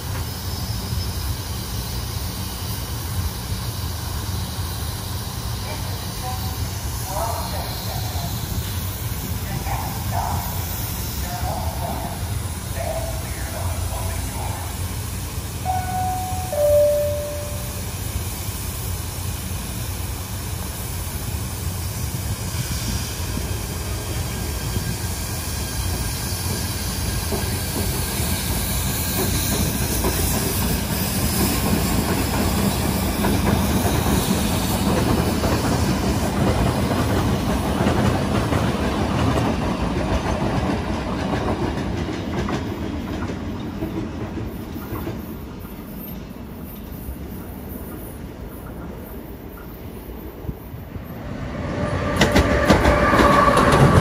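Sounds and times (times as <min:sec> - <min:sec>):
train rumbling on rails: 0:00.0 - 0:54.0
falling two-note tone: 0:15.7 - 0:17.9.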